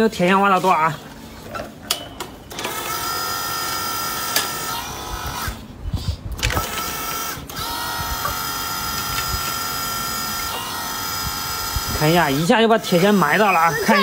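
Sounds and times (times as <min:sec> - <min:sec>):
toy excavator motors whining: 0:02.5 - 0:05.7, 0:06.4 - 0:14.0.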